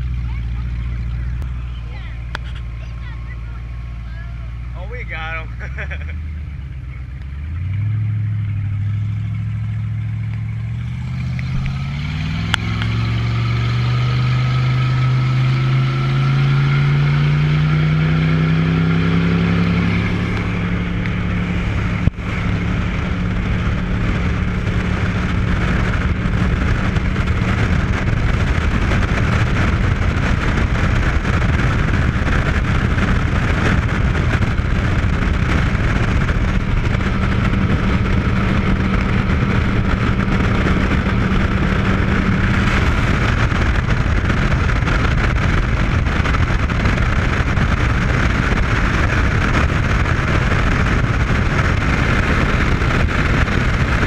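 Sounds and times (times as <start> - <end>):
speedboat engine accelerating: 0.0 - 54.0
rush of wind and water: 11.0 - 54.0.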